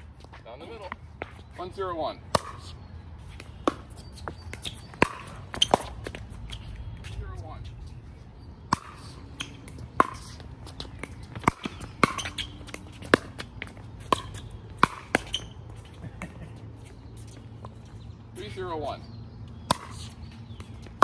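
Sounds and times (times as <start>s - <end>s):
ball bouncing on court: 3.3s - 7.2s, 8.7s - 15.6s, 19.6s - 21.0s.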